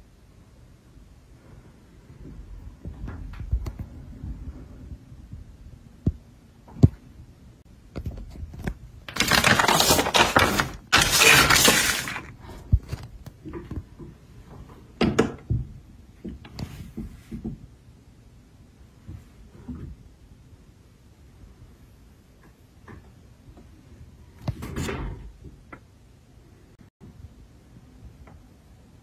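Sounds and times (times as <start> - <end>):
paper leaflet crinkling: 9.1 - 12.3.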